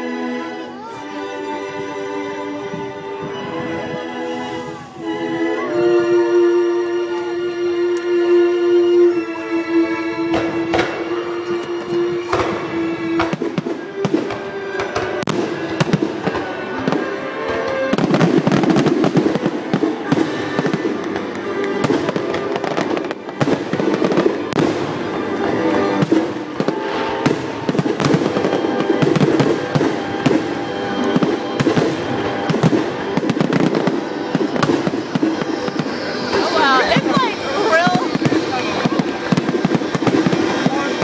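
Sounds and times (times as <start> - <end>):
fireworks bursting: 0.0 - 41.0
loud music: 0.0 - 41.0.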